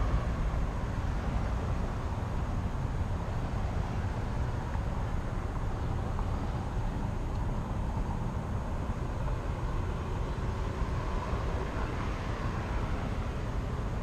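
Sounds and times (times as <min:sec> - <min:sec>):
low traffic rumble: 0:00.0 - 0:14.0.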